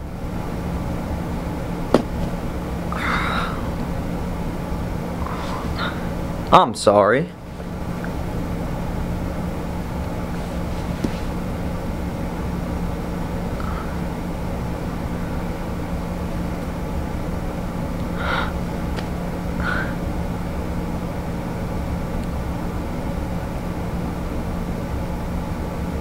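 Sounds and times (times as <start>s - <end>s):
constant low hum: 0.0s - 26.0s.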